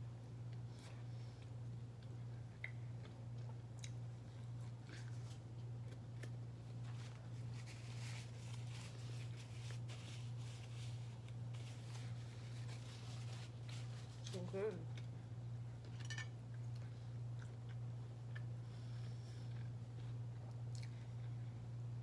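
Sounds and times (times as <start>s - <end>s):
chewing breadstick: 0.5s - 7.6s, 16.4s - 21.8s
paper napkin rustling: 6.8s - 14.5s.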